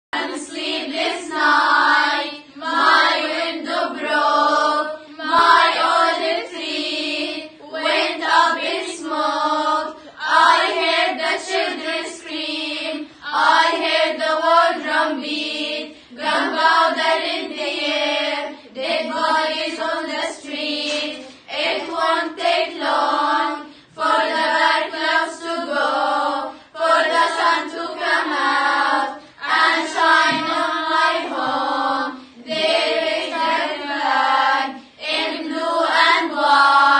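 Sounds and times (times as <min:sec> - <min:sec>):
girls singing together: 0:00.2 - 0:36.9.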